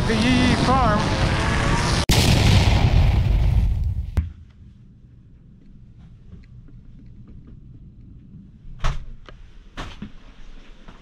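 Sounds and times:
loud booming rushing sound effect: 1.5s - 4.2s
quiet low hum: 4.2s - 11.0s.

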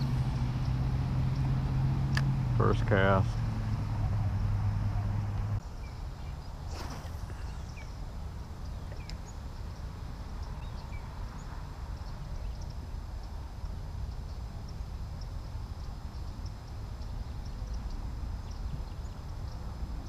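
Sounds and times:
faint bird chirps: 5.0s - 13.3s.

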